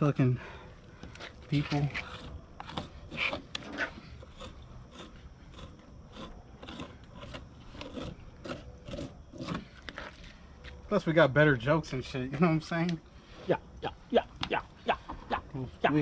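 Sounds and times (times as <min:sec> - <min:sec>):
knife slicing and scraping meat: 0:01.6 - 0:10.1.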